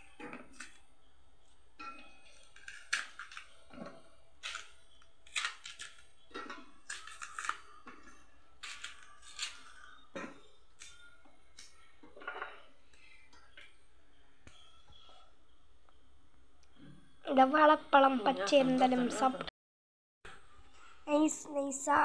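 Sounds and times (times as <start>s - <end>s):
knife scraping banana peel: 6.9s - 7.6s, 8.6s - 9.9s.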